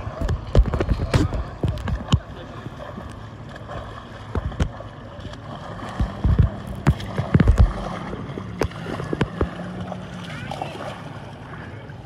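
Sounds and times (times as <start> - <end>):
swimmer splashing in water: 0.0 - 12.0
low thumps: 5.8 - 9.8.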